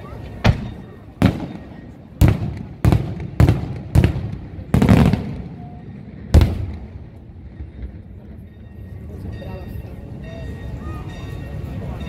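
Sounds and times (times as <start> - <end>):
fireworks bangs echoing: 0.4 - 7.2.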